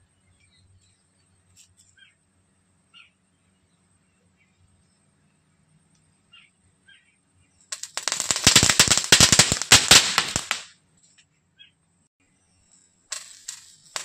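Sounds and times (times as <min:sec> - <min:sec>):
firework crackling pops: 0:07.7 - 0:10.7, 0:13.1 - 0:14.0.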